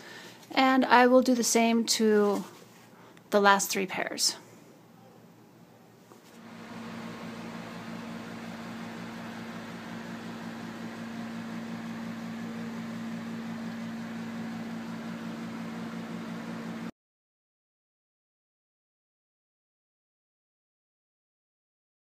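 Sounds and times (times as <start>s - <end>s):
machine hum with whirring hiss: 6.4s - 16.9s.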